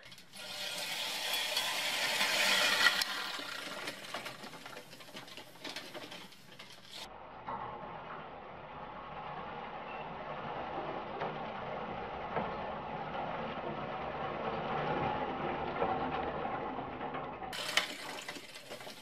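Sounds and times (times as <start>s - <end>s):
push reel mower cutting grass: 0.3s - 7.1s, 17.6s - 19.0s.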